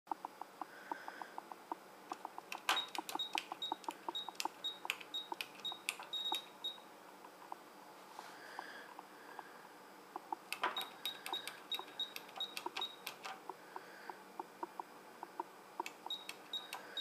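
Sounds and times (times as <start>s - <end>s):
faint even ticking: 0.1s - 6.8s, 10.2s - 17.0s
keypad clicks and high beeps: 2.1s - 6.8s, 10.6s - 13.4s, 15.8s - 17.0s.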